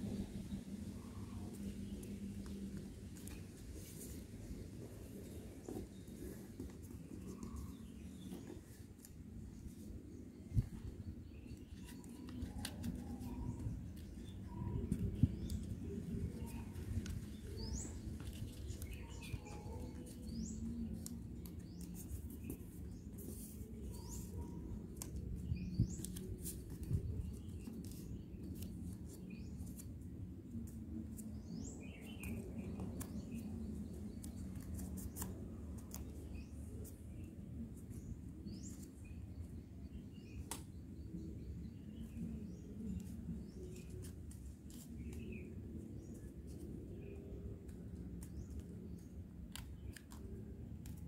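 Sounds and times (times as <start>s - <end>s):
paper being folded and creased: 1.2s - 10.1s, 11.4s - 31.5s, 32.2s - 38.0s, 42.1s - 51.0s
birds chirping: 13.2s - 24.8s.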